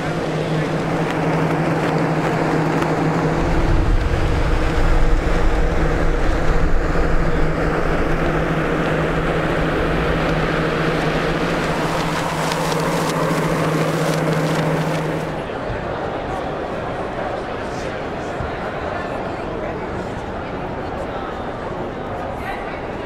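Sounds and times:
wind buffeting microphone: 0.0 - 15.5
steady mechanical hum: 0.0 - 23.0.

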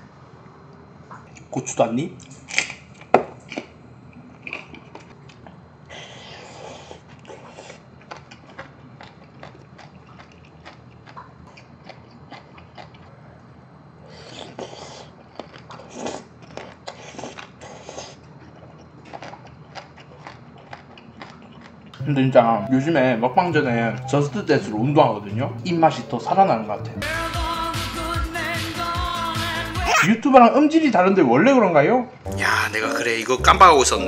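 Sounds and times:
close-up chewing: 2.2 - 13.2, 14.1 - 22.0.

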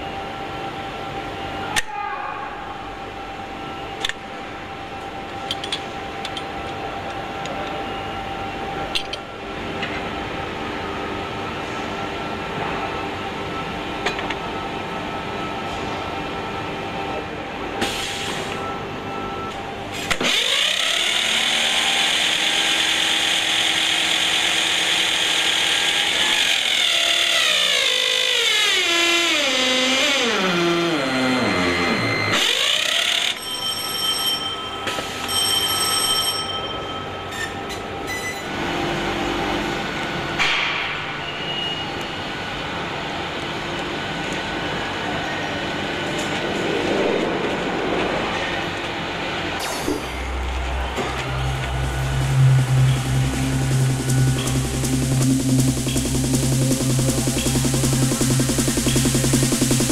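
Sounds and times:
machine hum with light clicks: 2.9 - 20.9, 37.3 - 45.4, 49.6 - 59.9
starter motor high whine: 50.2 - 59.9.

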